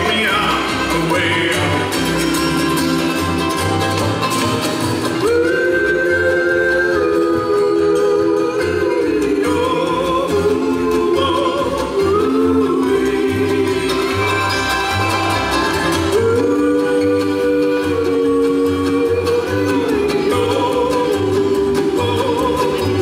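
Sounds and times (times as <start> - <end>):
bluegrass band playing: 0.0 - 23.0
voices singing harmony: 5.2 - 23.0.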